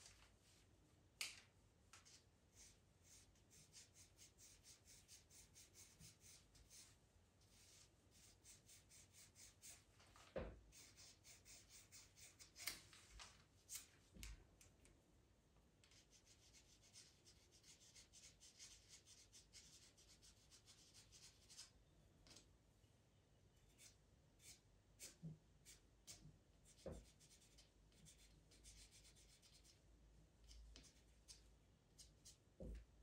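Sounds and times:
pencil scratching on paper: 0:02.6 - 0:09.9, 0:10.7 - 0:12.7, 0:15.9 - 0:21.7, 0:23.7 - 0:29.8.

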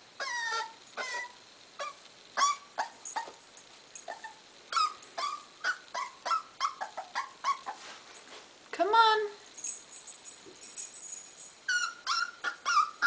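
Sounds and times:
puppy whimpering: 0:00.2 - 0:03.4, 0:04.1 - 0:07.9, 0:11.7 - 0:13.0.

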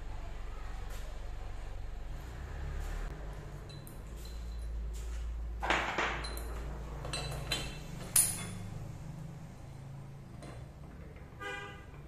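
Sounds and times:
steel tools clinking on metal: 0:03.6 - 0:04.8, 0:06.1 - 0:08.8.

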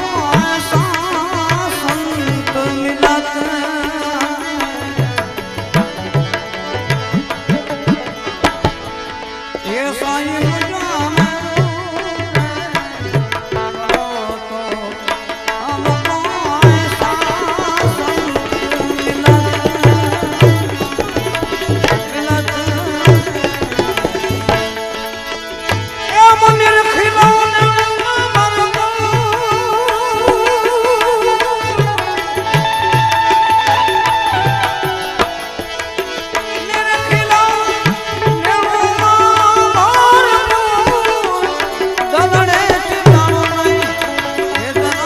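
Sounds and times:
harmonium melody: 0:00.0 - 0:45.0
hand drum beat: 0:05.8 - 0:08.9, 0:16.6 - 0:24.7.

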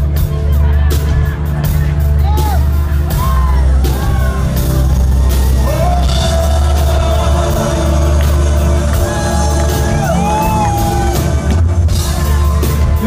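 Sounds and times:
live rock band playing: 0:00.0 - 0:13.0
person singing: 0:03.8 - 0:13.0.

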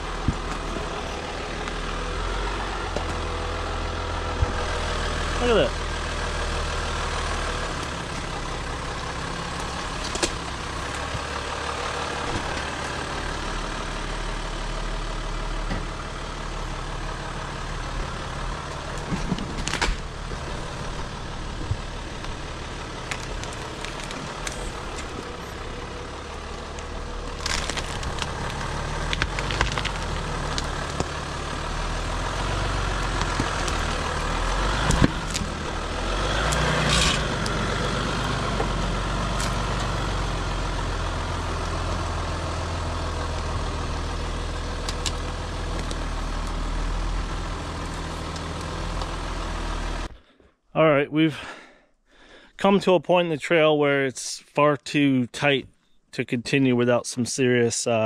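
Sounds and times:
diesel engine running: 0:00.0 - 0:50.4
branches snapping and scraping: 0:02.9 - 0:03.3, 0:09.5 - 0:13.0, 0:18.9 - 0:20.4, 0:21.6 - 0:25.6, 0:26.6 - 0:40.0, 0:44.8 - 0:46.6.

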